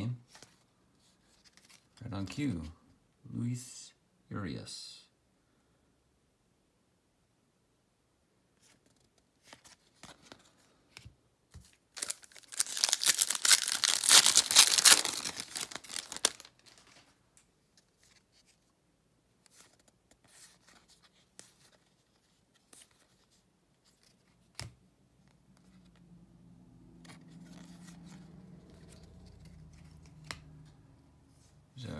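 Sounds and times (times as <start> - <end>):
cards shuffling: 0.3 - 2.3, 8.6 - 17.1, 27.0 - 30.8
foil wrapper tearing and crinkling: 12.0 - 16.9.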